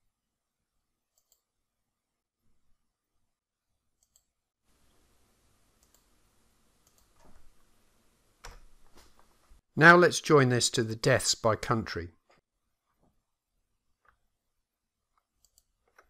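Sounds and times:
computer mouse clicks: 0:01.1 - 0:01.5, 0:04.0 - 0:04.3, 0:05.8 - 0:06.1, 0:06.8 - 0:07.4, 0:15.1 - 0:16.0.

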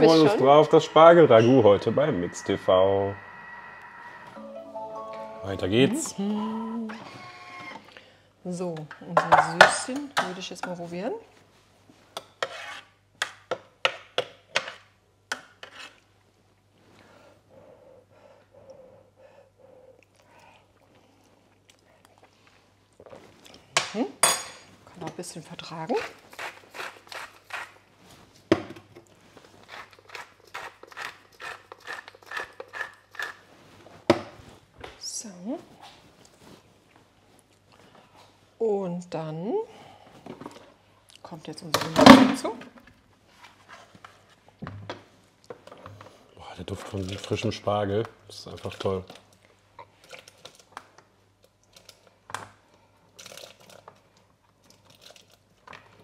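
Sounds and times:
spatula clicking and scraping: 0:29.6 - 0:33.4.

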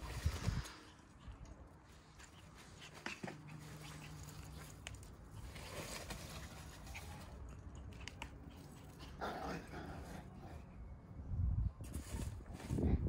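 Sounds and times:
puppies scuffling: 0:02.0 - 0:09.0.

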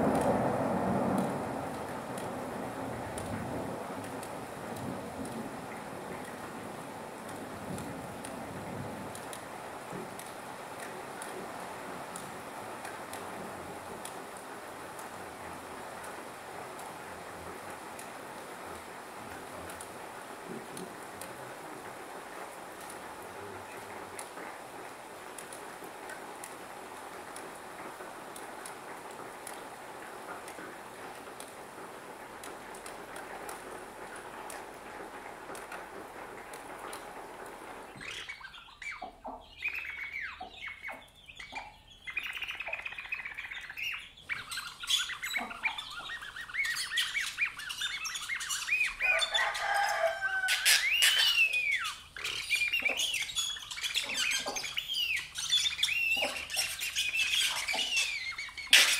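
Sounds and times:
steady hiss: 0:00.0 - 0:58.9
bird-like chirps and squawks: 0:38.0 - 0:58.9.

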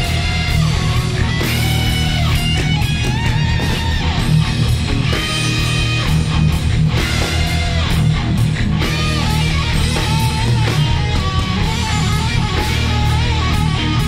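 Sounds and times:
heavy metal band playing: 0:00.0 - 0:14.0
lead guitar bent notes: 0:00.0 - 0:14.0.

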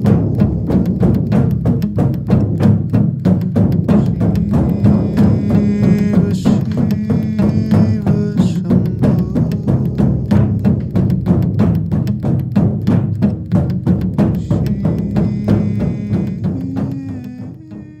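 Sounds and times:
frame drum beating fast: 0:00.0 - 0:18.0.

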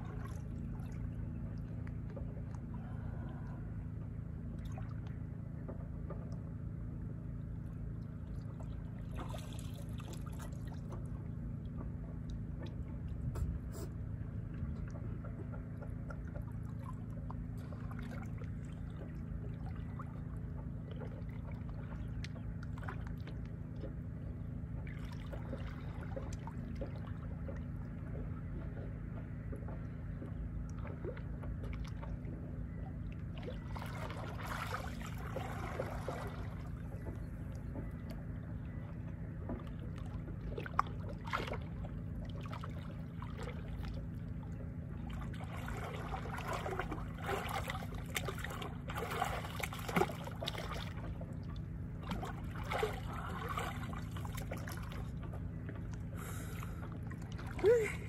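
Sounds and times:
small splashes: 0:00.0 - 0:03.6, 0:08.3 - 0:11.2, 0:14.7 - 0:24.0, 0:24.8 - 0:28.9, 0:29.5 - 0:38.2, 0:39.4 - 0:58.0
steady low rumble: 0:00.0 - 0:58.0
water sloshing and trickling: 0:00.0 - 0:58.0.

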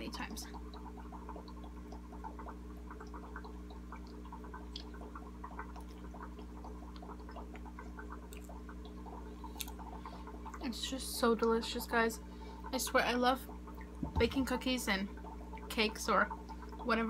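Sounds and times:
aquarium pump hum: 0:00.0 - 0:17.0
small bubbling clicks: 0:00.0 - 0:17.0.

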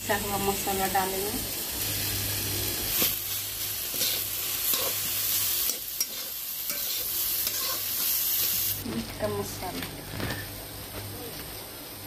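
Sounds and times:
food sizzling in a pan: 0:00.0 - 0:12.0
metal spatula scraping a pan: 0:03.0 - 0:08.2.

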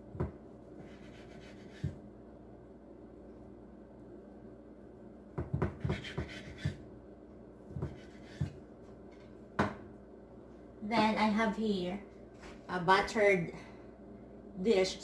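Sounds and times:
knife cutting dough: 0:00.8 - 0:02.0, 0:05.4 - 0:06.8, 0:07.7 - 0:08.6
knife knocking on wooden board: 0:05.4 - 0:06.8.

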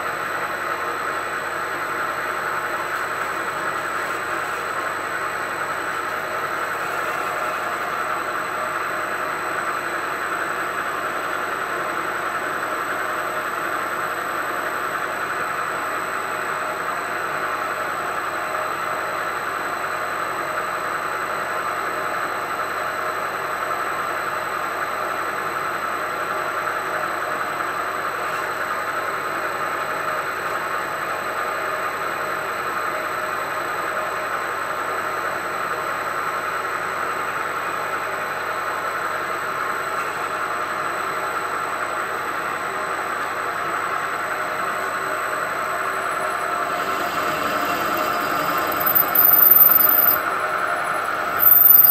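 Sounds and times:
milling machine drilling into steel: 0:46.4 - 0:51.9.

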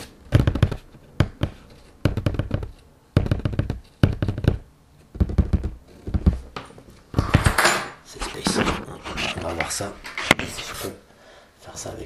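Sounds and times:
fingers tapping on cardboard box: 0:00.3 - 0:06.6.

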